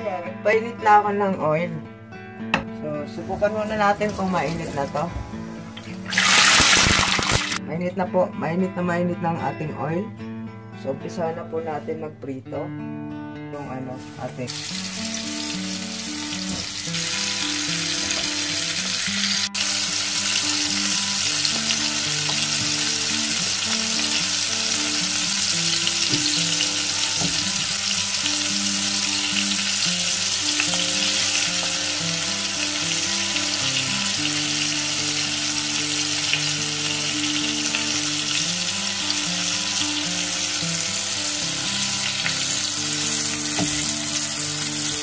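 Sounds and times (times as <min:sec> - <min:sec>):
oil sizzling in deep-fryer: 0:03.6 - 0:07.6, 0:14.0 - 0:45.0.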